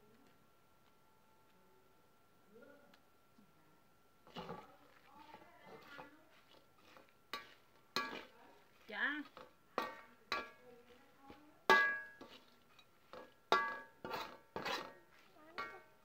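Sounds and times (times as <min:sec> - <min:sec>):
metal spatula clanking on pan: 0:07.3 - 0:08.3, 0:09.3 - 0:10.6, 0:11.6 - 0:15.0, 0:15.6 - 0:15.9.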